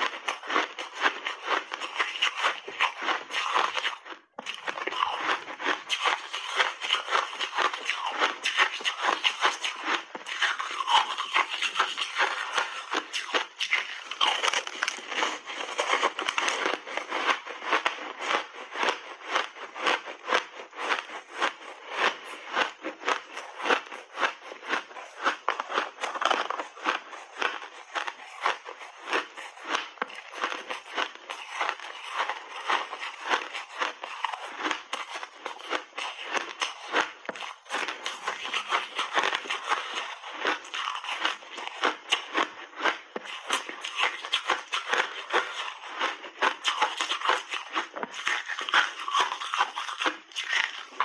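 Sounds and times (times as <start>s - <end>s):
snowballs crunching when chewed: 0.0s - 51.0s.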